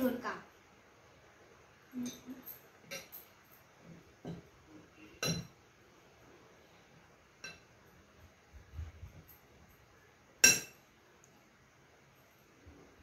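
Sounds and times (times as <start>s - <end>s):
metal spoon clinking on plate: 2.0s - 3.4s, 5.2s - 5.6s, 7.4s - 7.7s, 10.4s - 10.8s.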